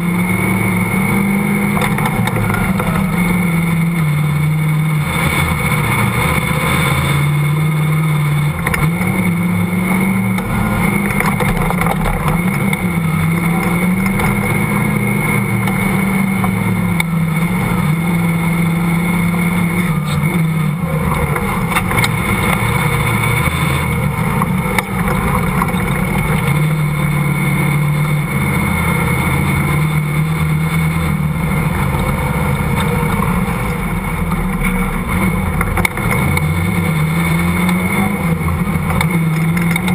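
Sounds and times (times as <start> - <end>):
off-road vehicle engine revving: 0.0 - 39.9.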